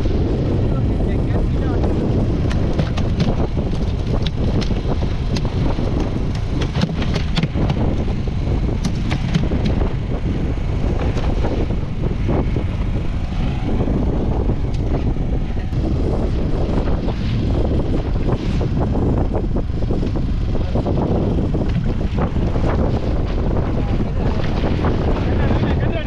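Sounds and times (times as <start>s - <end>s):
boat motor rumbling: 0.0s - 26.0s
wind buffeting microphone: 0.0s - 26.0s
sharp taps and knocks: 2.4s - 8.0s, 8.8s - 9.8s.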